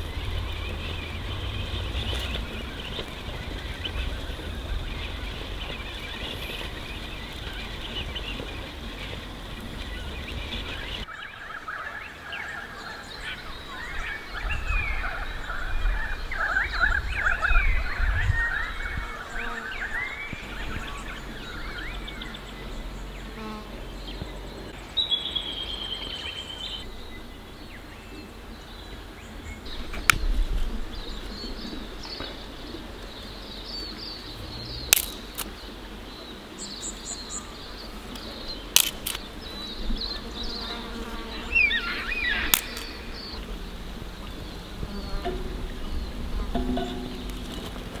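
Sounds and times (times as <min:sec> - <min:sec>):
birds calling and chirping: 0:00.0 - 0:48.0
sharp clicks and snaps: 0:34.8 - 0:35.5, 0:38.2 - 0:39.2, 0:42.5 - 0:43.0.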